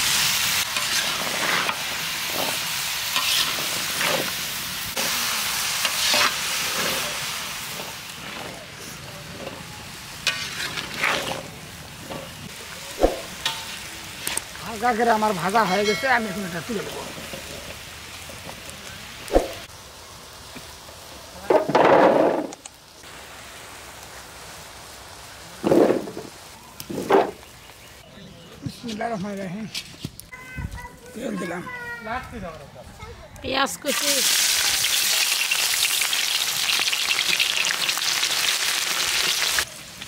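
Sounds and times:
frying oil hissing: 0.0 - 28.1, 33.5 - 40.0
metal spatula stirring: 0.7 - 4.3, 5.8 - 7.2, 10.2 - 11.5.

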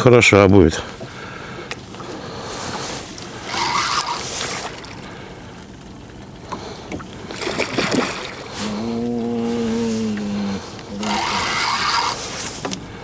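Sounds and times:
lake water lapping: 0.9 - 13.0
fish thrashing splashes: 3.3 - 5.1, 7.1 - 12.4.

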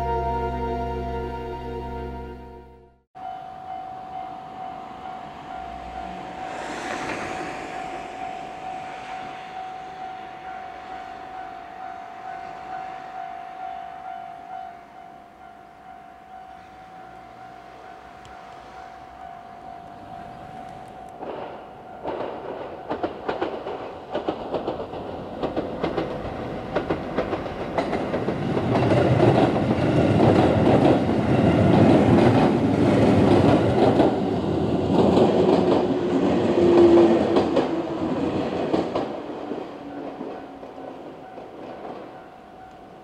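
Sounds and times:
electric train passing: 0.0 - 43.0
wheels clacking over rail joints: 20.2 - 42.7.

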